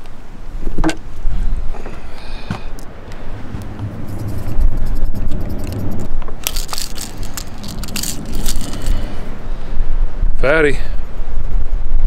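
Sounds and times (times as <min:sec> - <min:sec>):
wind buffeting microphone: 0:00.2 - 0:12.0
handling crackles and rattles: 0:04.5 - 0:09.0.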